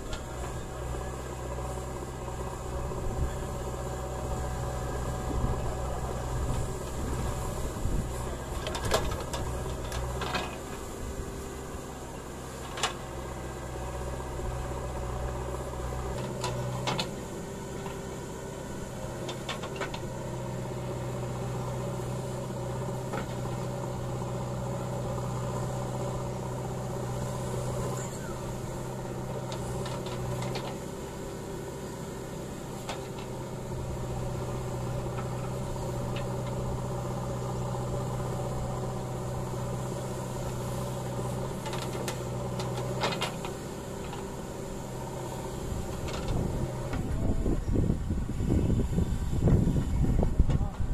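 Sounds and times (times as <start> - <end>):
backhoe diesel engine running: 0.0 - 50.9.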